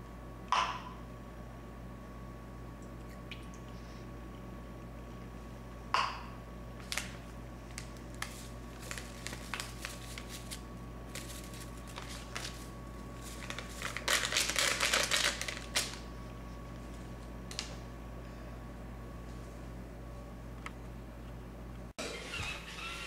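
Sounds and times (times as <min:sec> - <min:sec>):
crackly rustling: 0:06.8 - 0:16.0
paper packet crinkling: 0:06.8 - 0:16.1.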